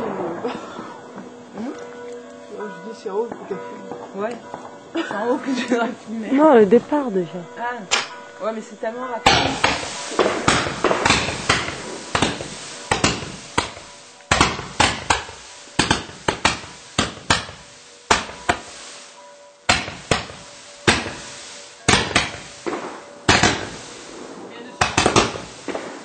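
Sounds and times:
firework cake bangs: 9.2 - 26.0.

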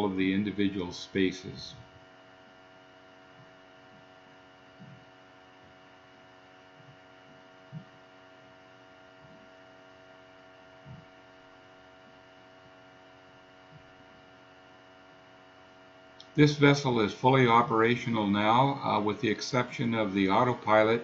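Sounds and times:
faint steady hum: 0.0 - 21.0
soft low thumps: 3.2 - 9.7, 10.7 - 11.4, 13.6 - 14.2.

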